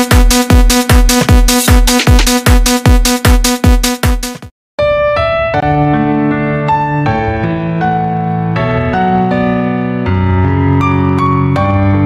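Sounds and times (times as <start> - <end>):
slow keyboard melody: 4.8 - 12.0.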